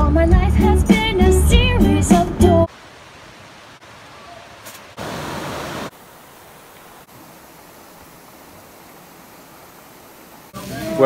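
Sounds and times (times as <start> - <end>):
creek running over rocks: 2.7 - 11.0.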